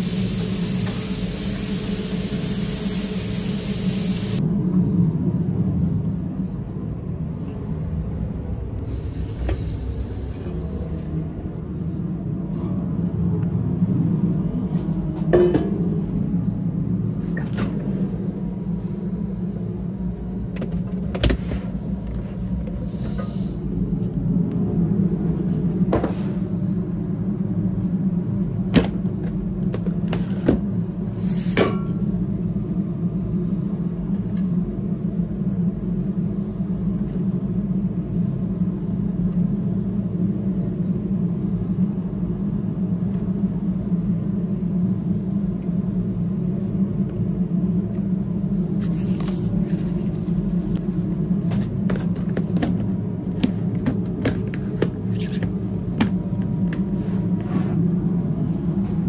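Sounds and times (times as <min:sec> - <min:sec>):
kitchen low rumble: 0:42.4 - 0:59.0.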